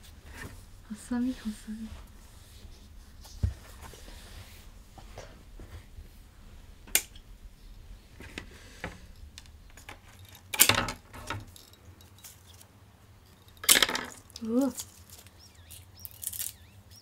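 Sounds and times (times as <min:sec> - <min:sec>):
leaves crackling: 0:12.2 - 0:17.0.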